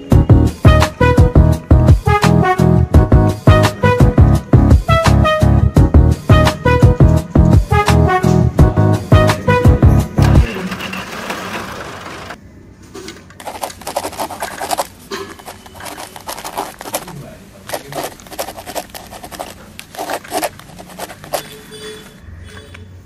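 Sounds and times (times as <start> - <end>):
pea pods rustling: 13.4 - 22.2.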